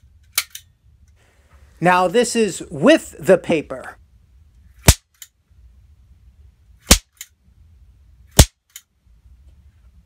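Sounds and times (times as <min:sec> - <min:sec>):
toy pistol sharp pops: 0:04.8 - 0:05.3, 0:06.8 - 0:07.3, 0:08.3 - 0:08.8.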